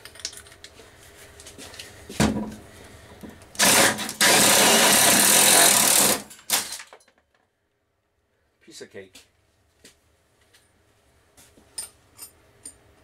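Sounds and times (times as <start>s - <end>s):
cordless drill running: 3.6s - 6.6s.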